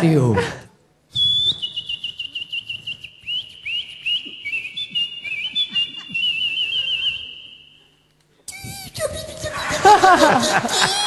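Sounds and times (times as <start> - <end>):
man whistling birdsong: 1.2 - 7.8.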